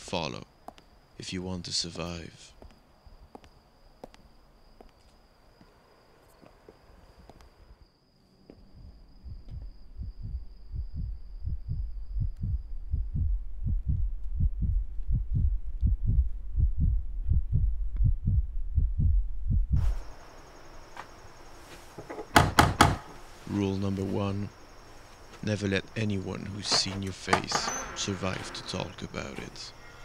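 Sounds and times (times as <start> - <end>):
low heartbeat-like pulsing: 8.6 - 20.0.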